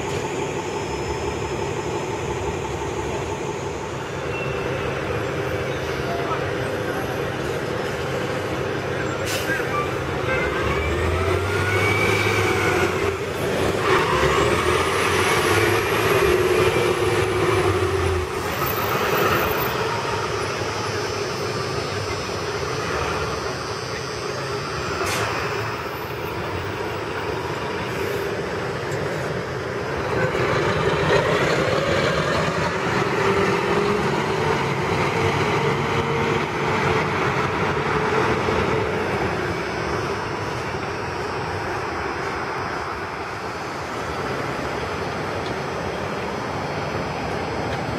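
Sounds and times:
bus engines running: 0.0 - 47.9
traffic noise: 0.0 - 47.9.

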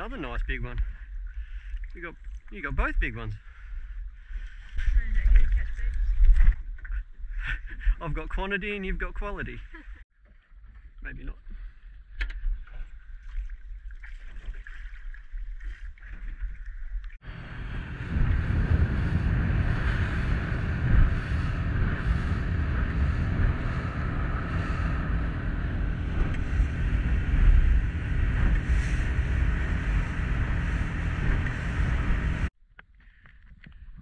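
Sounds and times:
idling boat low hum: 0.0 - 8.0, 9.3 - 33.9
boat engine running: 17.0 - 32.5
water rushing: 17.2 - 32.5
wind buffeting microphone: 17.2 - 32.5.

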